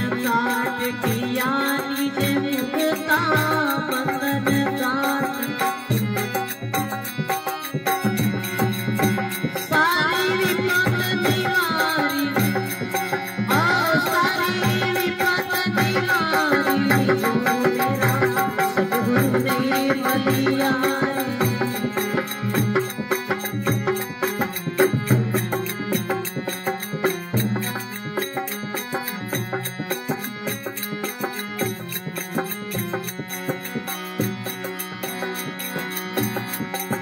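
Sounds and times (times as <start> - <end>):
man singing: 0.0 - 6.8, 9.7 - 22.4
hand drum beat: 0.0 - 37.0
harmonium: 0.0 - 37.0.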